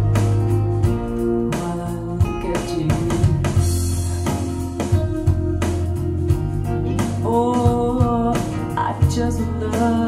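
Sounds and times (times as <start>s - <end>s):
bass line: 0.0s - 10.0s
guitar: 0.0s - 10.0s
person singing: 1.4s - 4.9s, 6.9s - 10.0s.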